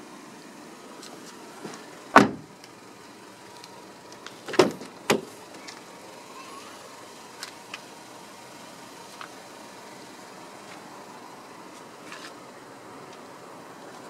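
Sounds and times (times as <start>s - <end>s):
car door slamming: 1.6s - 2.6s, 4.4s - 5.7s
light door clunks: 1.7s - 2.5s, 4.5s - 5.3s.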